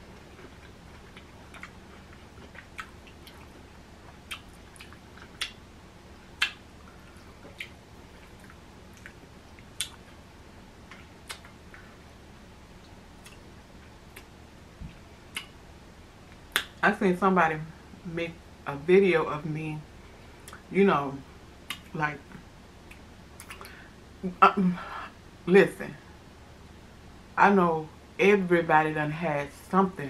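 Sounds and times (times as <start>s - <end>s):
crunchy chewing: 0.0s - 5.6s, 6.3s - 10.2s.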